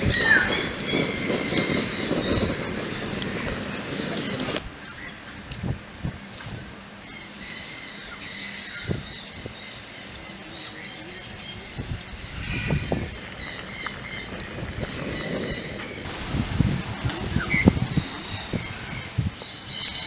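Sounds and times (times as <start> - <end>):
bird chirping: 0.0 - 5.3.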